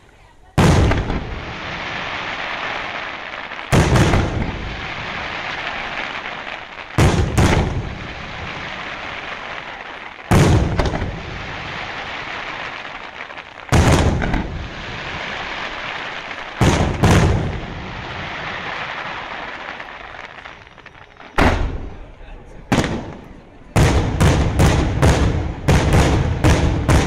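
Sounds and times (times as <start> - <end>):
firework shells booming: 0.6 - 27.0.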